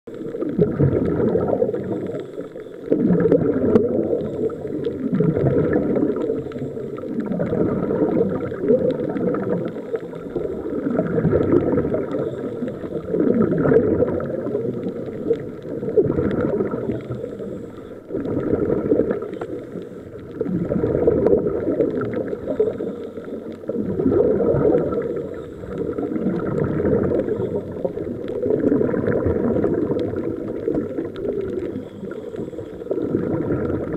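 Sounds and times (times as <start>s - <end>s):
exhaled bubbles gurgling: 0.1s - 33.9s.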